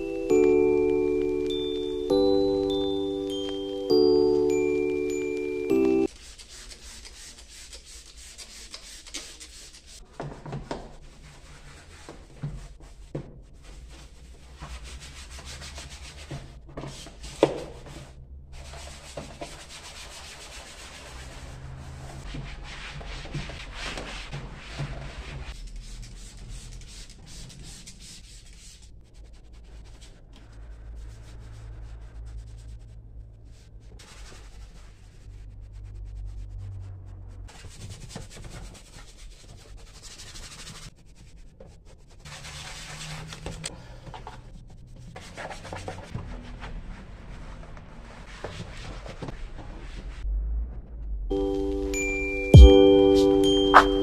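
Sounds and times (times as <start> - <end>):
brush scrubbing plastic trim: 6.1 - 13.0.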